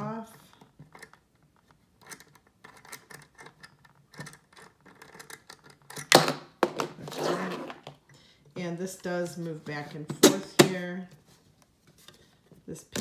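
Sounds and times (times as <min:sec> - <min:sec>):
scraping on desk: 0:06.8 - 0:08.0.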